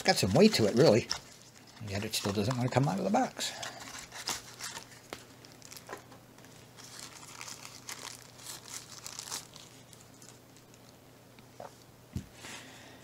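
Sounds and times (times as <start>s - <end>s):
plastic wrapping crinkling: 0.0s - 11.0s.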